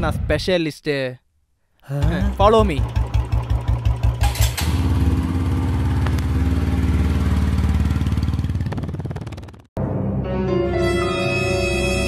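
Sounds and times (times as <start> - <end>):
motorcycle engine revving: 2.2 - 9.7.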